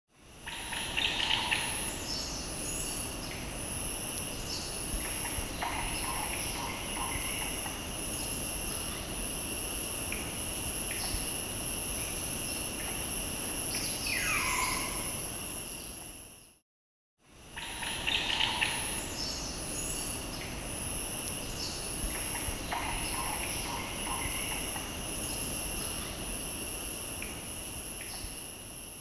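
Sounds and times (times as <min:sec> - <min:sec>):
insects droning: 0:00.2 - 0:16.6, 0:17.2 - 0:29.0
insect pulsing: 0:00.3 - 0:16.6, 0:17.4 - 0:29.0
bird calls: 0:13.8 - 0:15.1.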